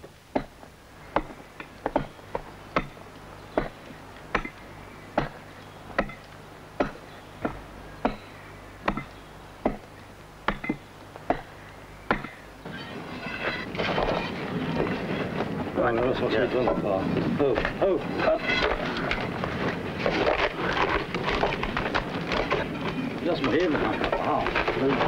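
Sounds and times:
hammer striking wedges into stone: 0.4s - 3.0s, 3.6s - 4.6s, 5.2s - 5.4s, 6.0s - 6.2s, 6.8s - 9.9s, 10.5s - 11.5s, 12.1s - 12.4s.

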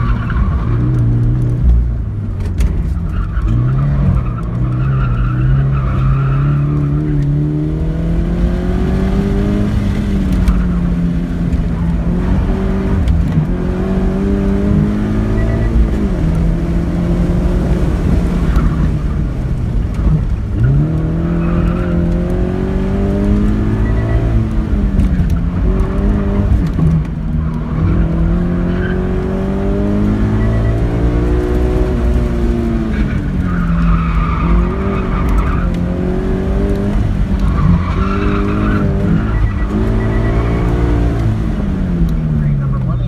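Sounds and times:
car engine revving: 0.0s - 43.0s.

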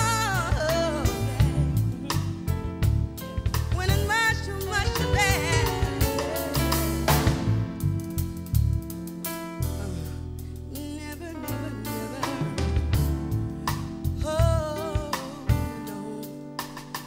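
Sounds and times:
woman singing with vibrato: 0.0s - 2.4s, 3.8s - 6.5s, 10.8s - 12.6s, 14.2s - 16.5s
bass guitar: 0.0s - 17.0s
drum kit: 0.0s - 17.0s.

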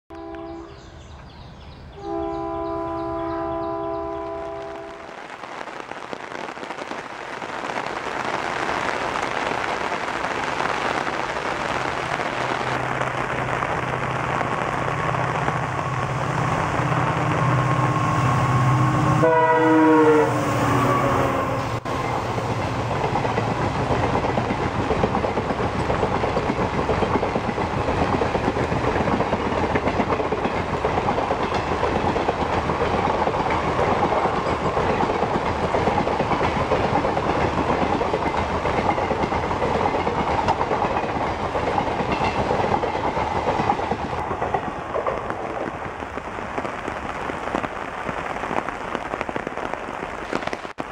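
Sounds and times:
train wheels clattering over rails: 21.9s - 45.8s.

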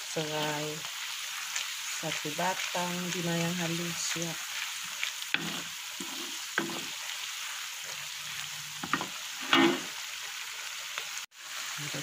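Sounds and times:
onions sizzling in hot oil: 0.0s - 12.0s
wooden spatula scraping a wok: 4.6s - 7.2s, 7.8s - 10.0s.

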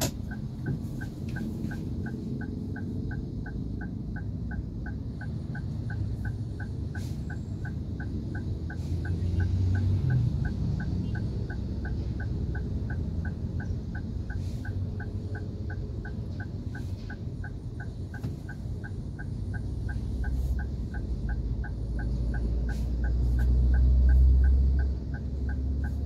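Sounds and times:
engine and traffic rumble: 0.0s - 26.0s
turn signal ticking: 0.0s - 26.0s.

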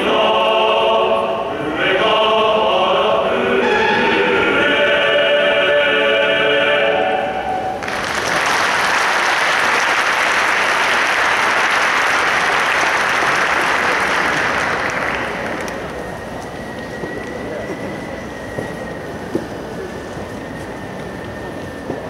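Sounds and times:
men's choir singing a chord: 0.0s - 7.9s
audience applause: 7.8s - 16.0s.

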